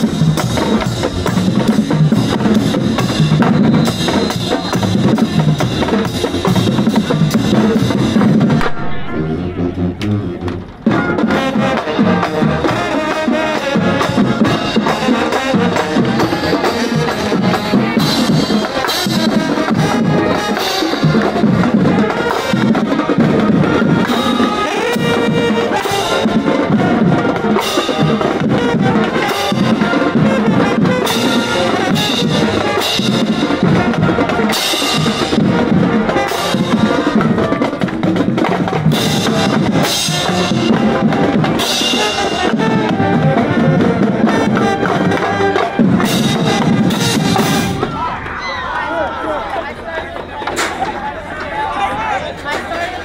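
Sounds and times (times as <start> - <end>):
brass instruments: 0.0 - 50.2
drums beating: 0.0 - 53.0
marching band playing: 0.0 - 53.0.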